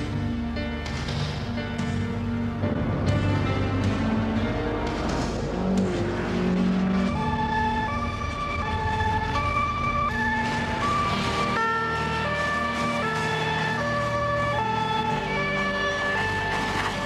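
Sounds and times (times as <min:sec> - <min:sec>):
car engine hum: 0:01.7 - 0:17.0
two-tone emergency sirens: 0:05.8 - 0:17.0.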